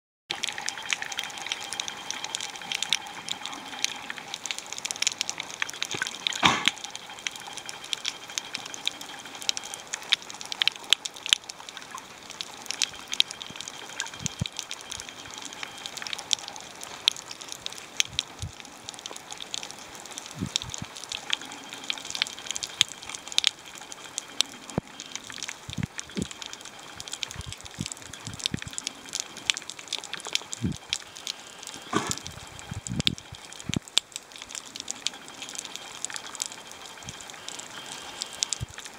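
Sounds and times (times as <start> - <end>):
snapping shrimp clicks: 5.0 - 6.8
loud underwater crack: 5.8 - 6.8, 31.8 - 32.4.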